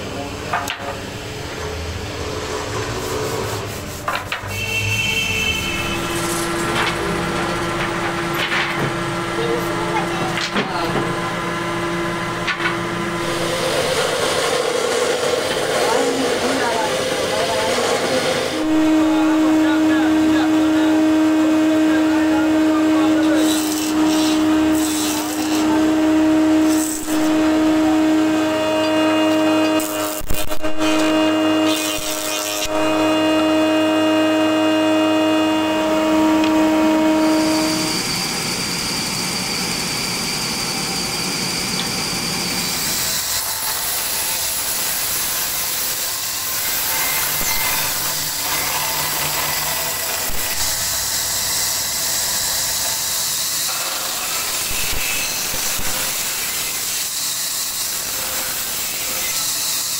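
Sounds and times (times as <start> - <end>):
machine motor humming: 5.5 - 31.6
band saw ripping wood: 23.1 - 27.8, 28.5 - 33.9.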